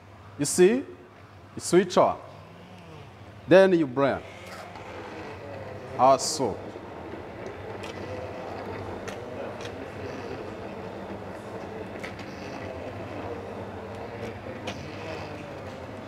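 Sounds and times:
hand blender motor whirring: 0:04.2 - 0:16.0.

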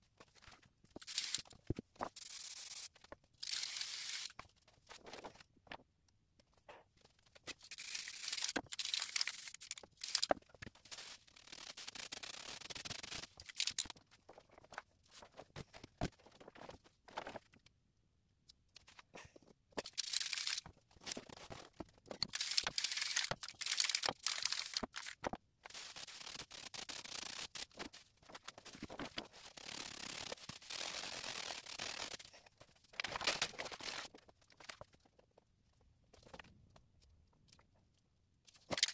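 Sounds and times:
spray paint can hissing: 0:01.0 - 0:01.5, 0:02.2 - 0:04.4, 0:07.7 - 0:10.3, 0:22.3 - 0:24.8.

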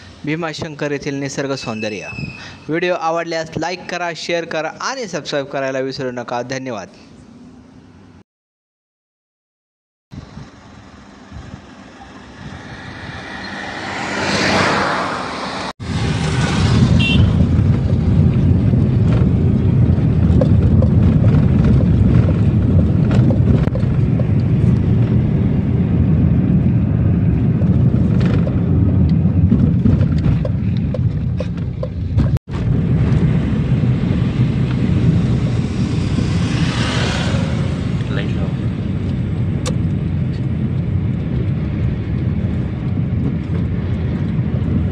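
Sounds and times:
vehicle driving on road: 0:10.1 - 0:44.9.

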